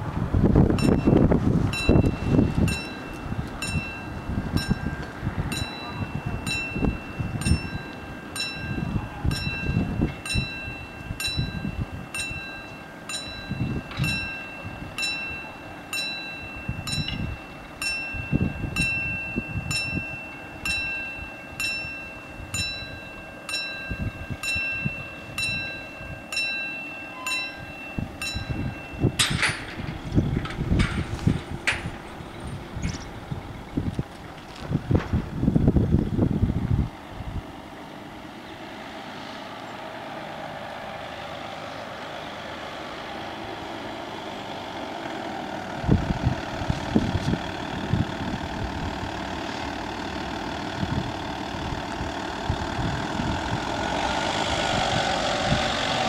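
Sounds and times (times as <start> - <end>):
wind buffeting microphone: 0.0 - 41.3, 45.4 - 56.0
level crossing bells ringing: 0.8 - 30.2.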